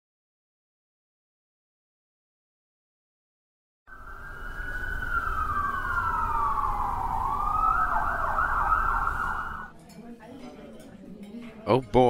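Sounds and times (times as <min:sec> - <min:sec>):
emergency sirens wailing: 0:03.9 - 0:09.7.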